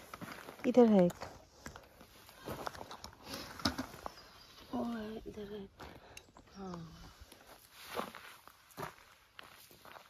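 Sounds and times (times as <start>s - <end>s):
footsteps scuffing on dirt: 0.0s - 4.7s, 5.8s - 10.0s.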